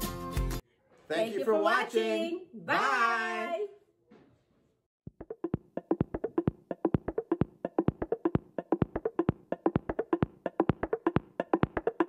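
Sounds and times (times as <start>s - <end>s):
clicky percussive music: 5.1s - 12.0s.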